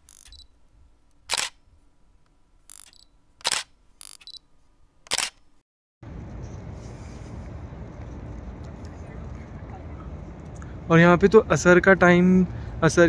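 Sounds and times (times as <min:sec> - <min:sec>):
camera shutter clicks: 0:00.0 - 0:00.4, 0:01.2 - 0:01.6, 0:02.7 - 0:04.4, 0:05.1 - 0:05.6
outdoor background noise: 0:00.0 - 0:13.0.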